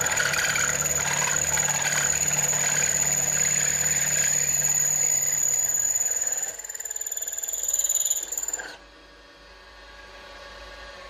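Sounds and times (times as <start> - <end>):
milling machine cutting metal: 0.0 - 8.8.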